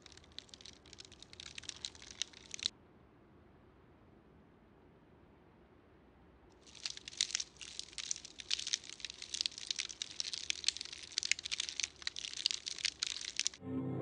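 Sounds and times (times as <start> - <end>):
nibbling crunches: 0.0 - 2.7, 6.6 - 13.6.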